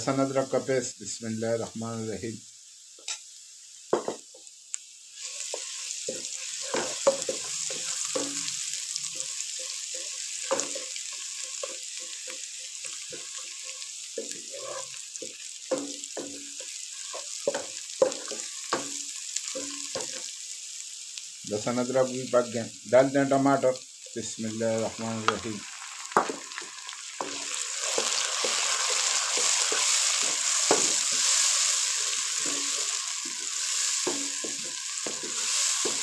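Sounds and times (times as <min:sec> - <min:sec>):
onions sizzling in hot fat: 0:00.0 - 0:36.0
wooden spatula scraping a pot: 0:09.1 - 0:15.3, 0:27.2 - 0:36.0.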